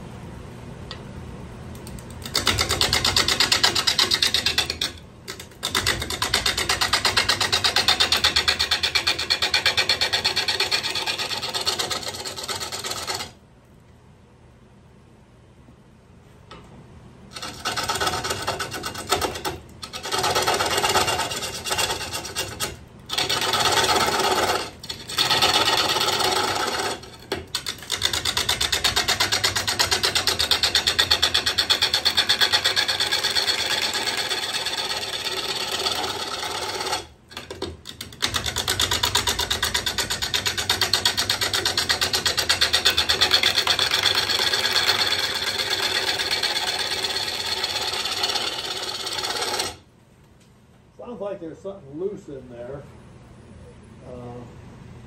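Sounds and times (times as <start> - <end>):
lathe gouge cutting wood: 2.3 - 13.3, 17.4 - 37.6, 38.2 - 49.8.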